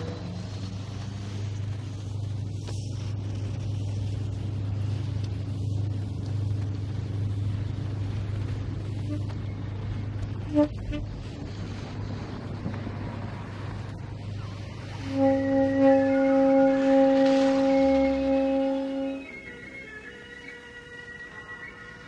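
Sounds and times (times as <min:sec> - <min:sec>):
boat engine droning: 0:00.0 - 0:22.0
faint hiss: 0:00.0 - 0:22.0.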